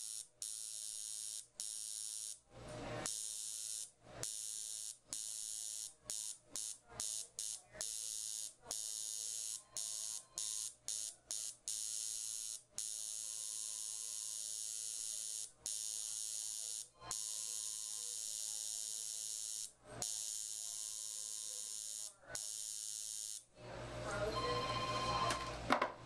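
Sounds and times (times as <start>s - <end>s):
makeup machine buzzing: 0.0s - 2.4s, 3.0s - 23.4s.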